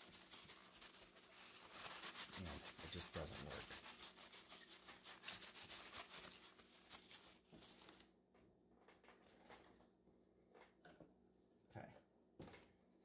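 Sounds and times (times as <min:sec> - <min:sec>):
paper towel wiping glass: 0:00.0 - 0:08.0
faint handling sounds: 0:00.0 - 0:11.0.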